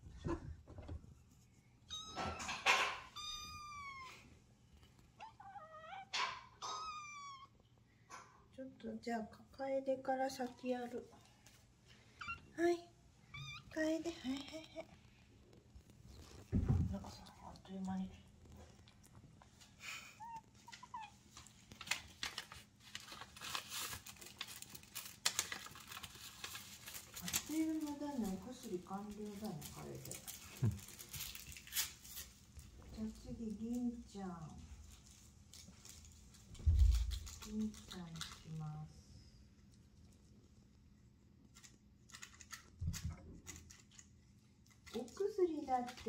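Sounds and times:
kittens meowing: 1.9 - 4.3, 5.2 - 7.6, 13.2 - 13.8
kitten lapping and smacking: 14.9 - 21.8.

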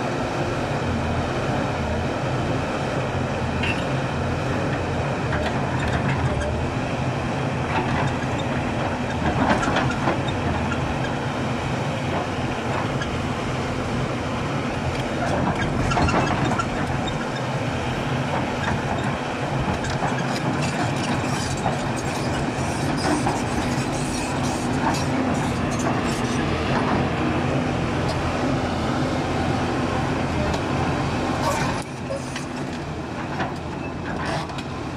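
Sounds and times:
diesel engine running under load: 0.0 - 34.9
clanks and rattles of rock and steel: 7.7 - 11.2, 14.9 - 17.5, 18.3 - 27.1, 31.4 - 34.7.

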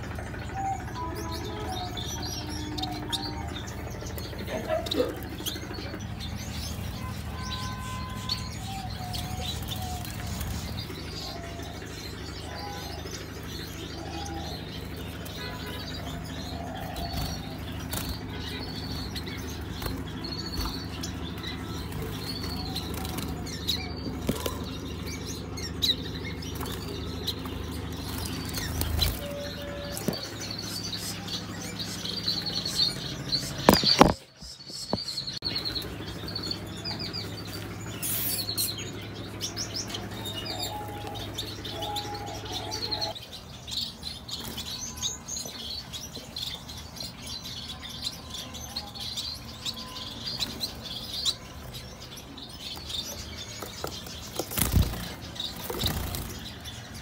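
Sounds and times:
birds flapping wings: 26.2 - 31.1, 53.6 - 56.9.

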